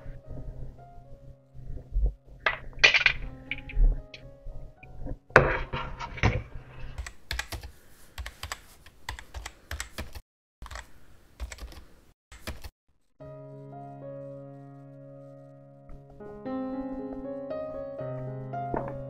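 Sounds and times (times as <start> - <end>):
piano music: 0.0 - 6.0, 13.2 - 19.0
clattering: 2.4 - 4.2, 5.3 - 6.6
computer keyboard typing: 7.0 - 11.8, 12.4 - 12.7.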